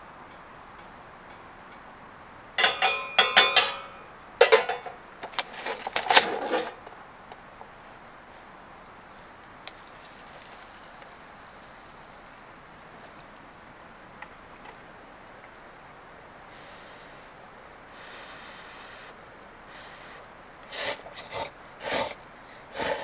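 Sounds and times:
low steady hiss: 0:00.0 - 0:23.0
metal pot and lid clattering: 0:02.6 - 0:05.0.

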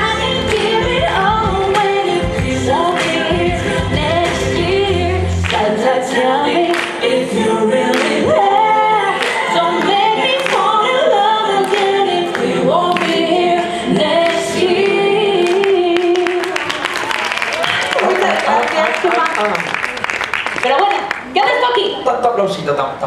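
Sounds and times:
low bass: 0:00.0 - 0:05.6
voices singing in harmony: 0:00.0 - 0:16.7.

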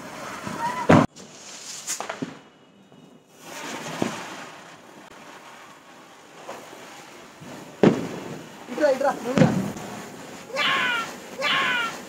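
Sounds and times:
ground firework hissing: 0:00.0 - 0:02.5, 0:03.2 - 0:12.0.

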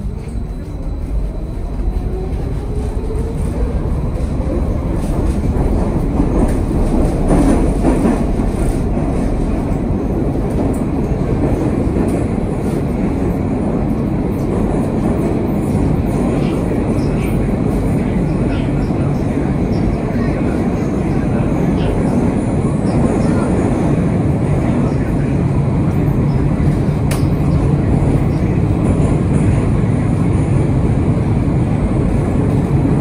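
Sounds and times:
train wheels rumbling on rail: 0:00.0 - 0:33.0.

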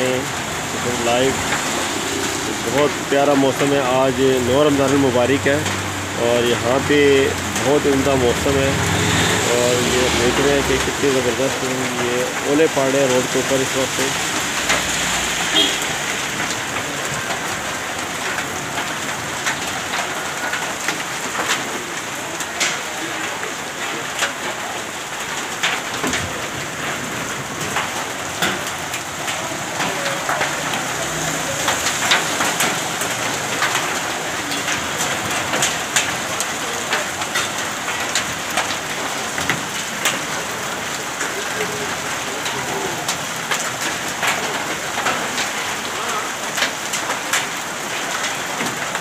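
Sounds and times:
hailstones ticking on hard surfaces: 0:00.0 - 0:49.0
heavy rain on the street: 0:00.0 - 0:49.0.

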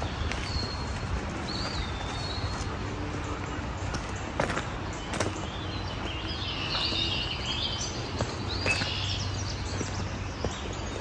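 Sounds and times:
birds singing: 0:00.0 - 0:11.0
footsteps on dirt trail: 0:00.0 - 0:11.0.

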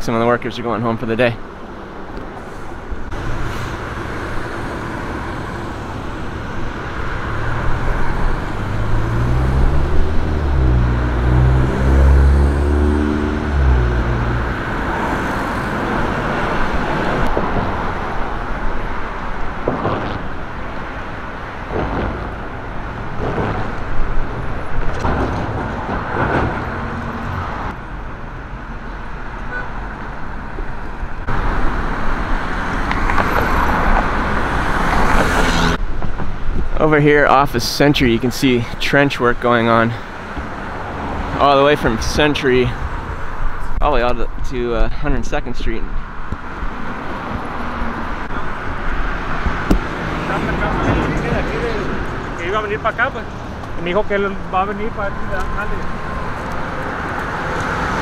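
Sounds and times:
passing cars rushing: 0:01.2 - 0:58.0
heavy vehicle engine passing: 0:02.3 - 0:28.7, 0:45.8 - 0:58.0.

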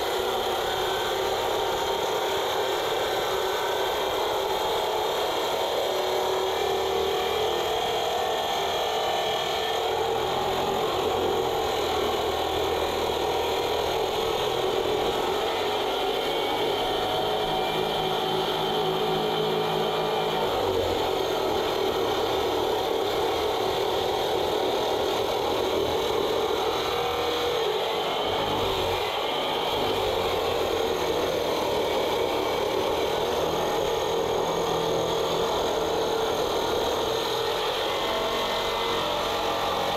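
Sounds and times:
concrete saw grinding concrete: 0:00.0 - 0:39.9.

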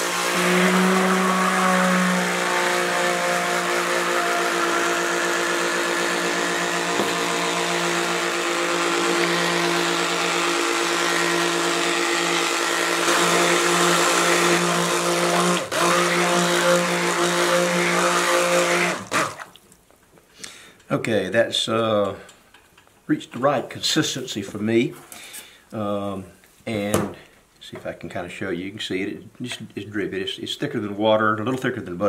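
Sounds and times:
stick blender motor hum: 0:00.0 - 0:19.5.

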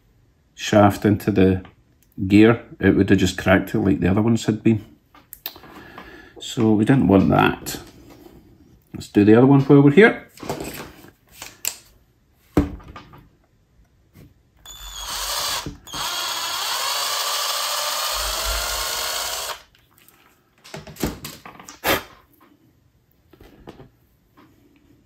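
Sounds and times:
small electric drill running: 0:14.6 - 0:19.7.

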